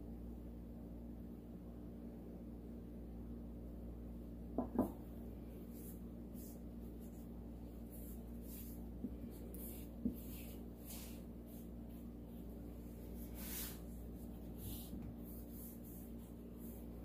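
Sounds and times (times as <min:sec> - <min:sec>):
hand smoothing paint on canvas: 0:05.5 - 0:17.0.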